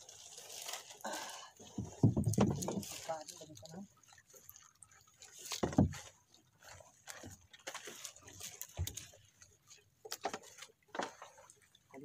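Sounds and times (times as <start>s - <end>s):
fishing net hauled into boat: 0.0s - 12.0s
net slapping against wooden hull: 1.7s - 3.6s, 5.4s - 6.1s, 10.0s - 11.5s.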